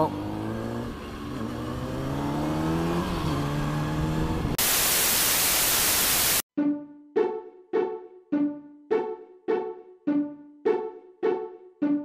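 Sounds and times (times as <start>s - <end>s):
motorcycle engine accelerating: 0.0s - 4.6s
static hiss: 4.6s - 6.4s.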